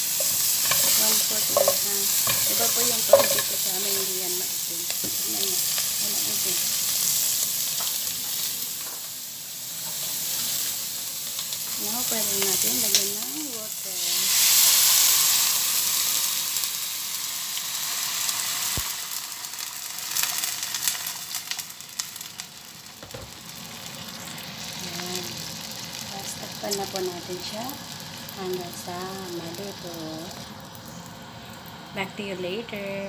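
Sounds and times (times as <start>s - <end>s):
meat sizzling in a pot: 0.0s - 33.0s.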